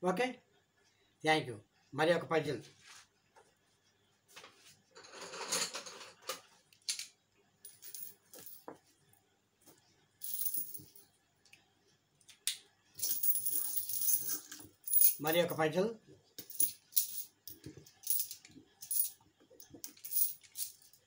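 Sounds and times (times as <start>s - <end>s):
coins clinking: 7.7s - 8.6s, 10.2s - 11.0s, 13.0s - 15.5s, 16.4s - 21.0s.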